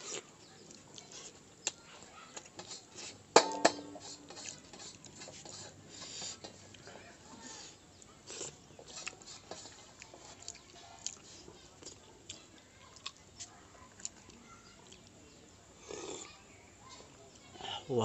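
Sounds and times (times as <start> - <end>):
person chewing and lip-smacking: 9.9 - 13.2, 13.9 - 15.1.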